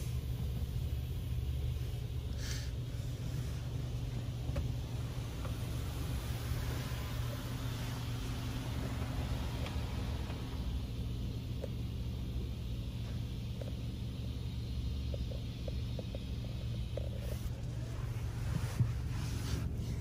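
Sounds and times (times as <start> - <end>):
steady low hum: 0.0 - 20.0
water spray hiss: 2.4 - 12.0.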